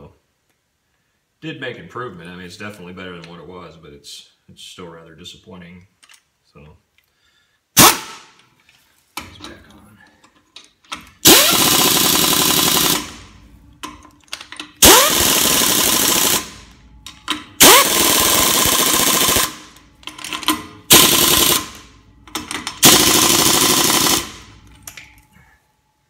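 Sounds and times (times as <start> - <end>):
pneumatic impact wrench: 7.8 - 8.3, 11.2 - 13.3, 14.6 - 24.6.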